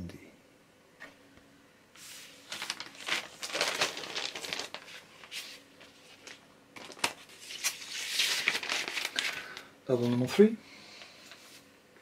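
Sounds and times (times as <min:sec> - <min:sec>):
paper and cardboard rustling: 0:02.0 - 0:10.5.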